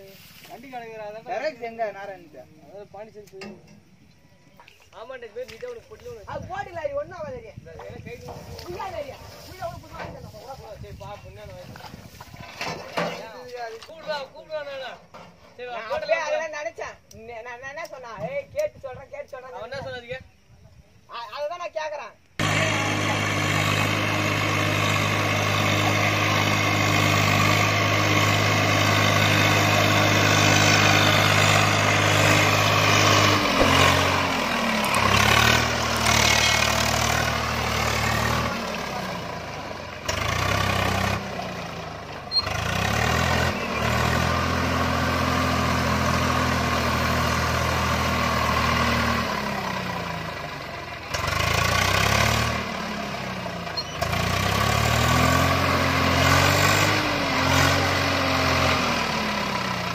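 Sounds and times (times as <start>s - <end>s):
tractor diesel engine under load: 22.4s - 59.9s
tyres churning through mud: 22.4s - 59.9s.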